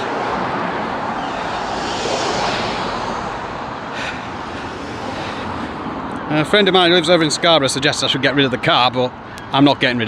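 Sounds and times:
vehicle passing on road: 0.0s - 7.8s.

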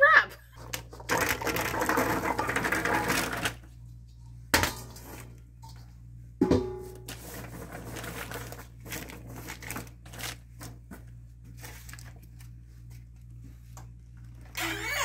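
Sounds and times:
crinkling paper: 7.1s - 13.4s.

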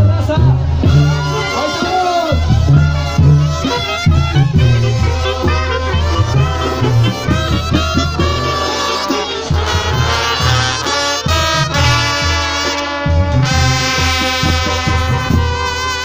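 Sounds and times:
drums: 0.0s - 16.0s
trombones: 0.0s - 16.0s
tuba bass line: 0.0s - 16.0s
clarinets: 0.8s - 11.3s.

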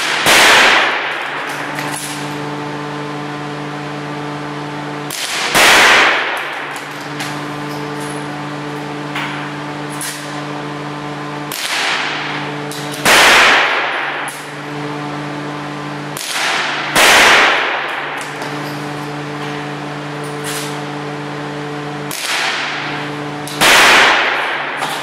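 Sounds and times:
rifle shots with reverberation: 0.0s - 1.3s, 5.1s - 6.4s, 13.0s - 14.2s, 16.2s - 18.0s, 23.6s - 24.8s
steady low hum: 0.0s - 25.0s.

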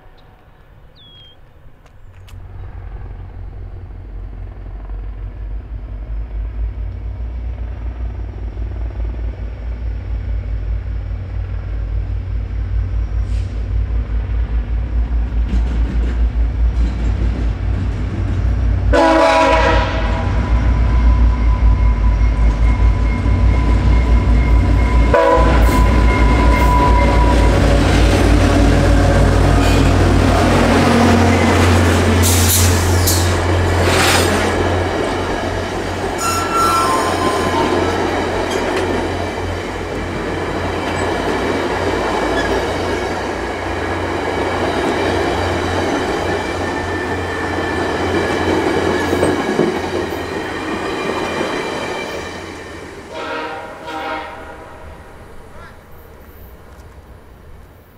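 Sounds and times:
locomotive engine hum: 0.0s - 57.9s
train wheels rumbling on rails: 0.0s - 57.9s
wheel squeal: 36.1s - 38.6s.

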